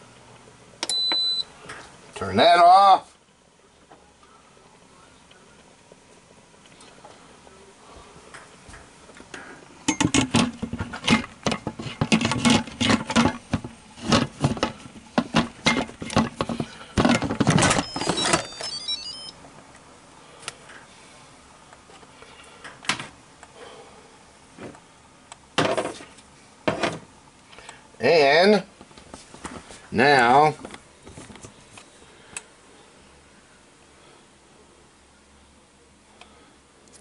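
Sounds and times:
electronic beeps: 0:17.7 - 0:19.4.

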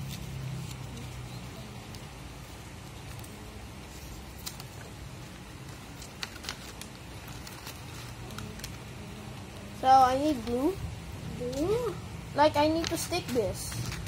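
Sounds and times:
low background hum: 0:00.0 - 0:14.0.

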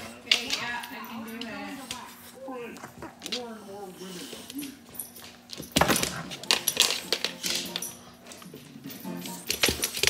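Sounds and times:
chain collar and tag jangling: 0:04.6 - 0:10.0.

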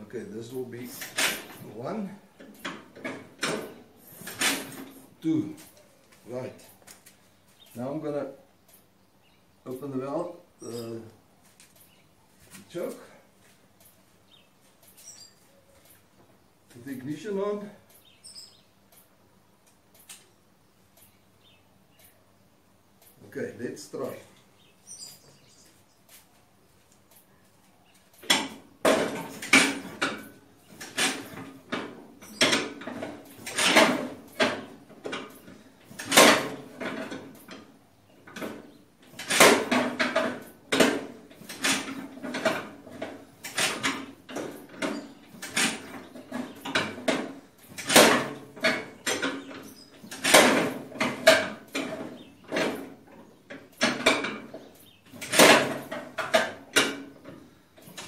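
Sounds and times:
engine hand-cranked clanking: 0:00.3 - 0:05.8, 0:28.1 - 0:58.0.

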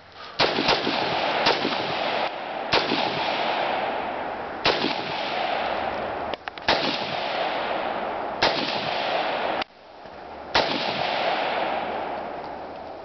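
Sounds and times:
rifle shots: 0:00.4 - 0:09.7, 0:10.5 - 0:12.4.

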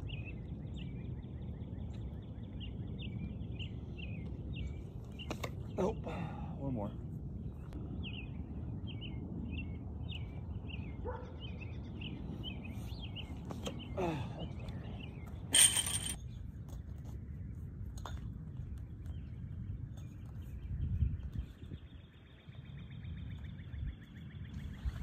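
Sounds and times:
small birds chirping: 0:00.0 - 0:25.0
person grunting: 0:14.0 - 0:14.5
metal weight landing with clank: 0:15.5 - 0:16.2.

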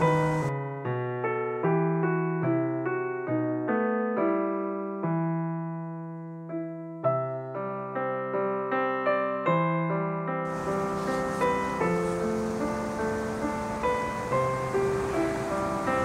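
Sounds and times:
faint hiss: 0:00.0 - 0:00.5, 0:10.5 - 0:16.0
slow piano music: 0:00.0 - 0:16.0.

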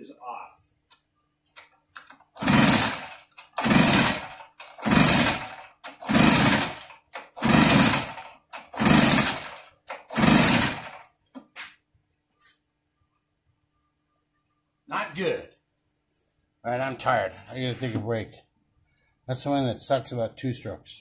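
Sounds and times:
recoil starter pulls cranking engine: 0:02.3 - 0:11.0.

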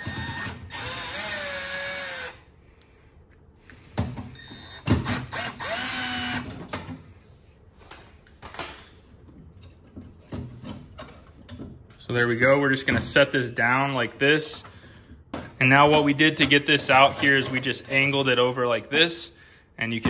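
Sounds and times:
cordless drill motor whining: 0:00.0 - 0:02.4, 0:04.4 - 0:06.5
sharp knocks and handling clatter: 0:07.8 - 0:12.1.

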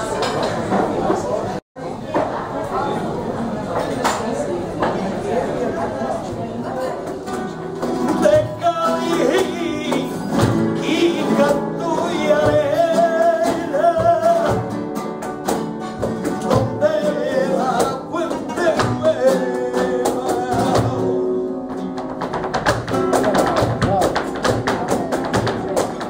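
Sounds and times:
guitars playing: 0:07.2 - 0:26.0
man singing: 0:08.0 - 0:14.9, 0:16.0 - 0:21.7
sharp handclaps: 0:21.9 - 0:26.0.

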